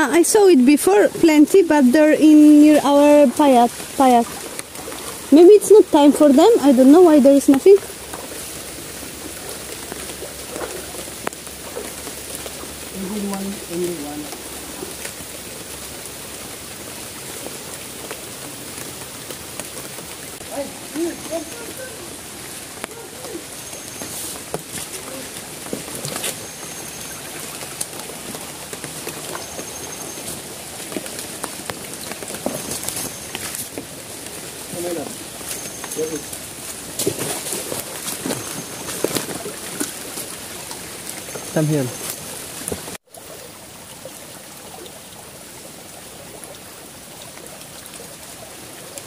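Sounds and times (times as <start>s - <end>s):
rain on leaves: 0.0s - 49.0s
stream trickling: 0.0s - 49.0s
footsteps through wet leaves: 1.8s - 43.0s.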